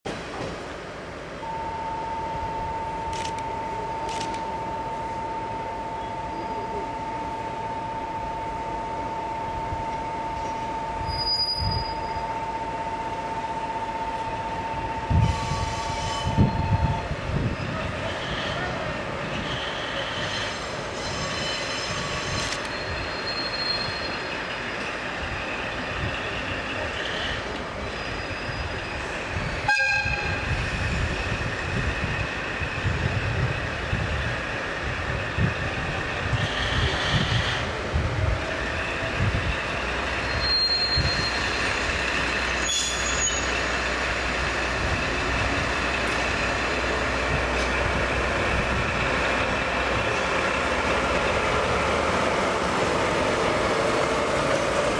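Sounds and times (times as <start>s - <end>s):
diesel locomotive engine rumble: 0.1s - 54.9s
train horn: 29.6s - 30.5s.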